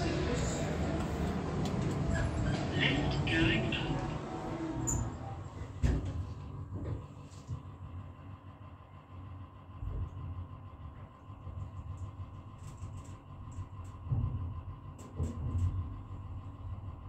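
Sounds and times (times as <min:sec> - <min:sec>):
lift low rumble: 0:00.0 - 0:17.0.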